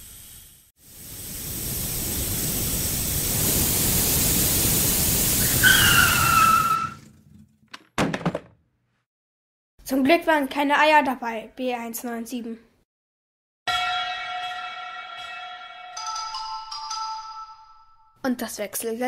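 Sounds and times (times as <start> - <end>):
cartoon rushing noise: 5.4 - 7.0
skidding squeal: 5.4 - 7.1.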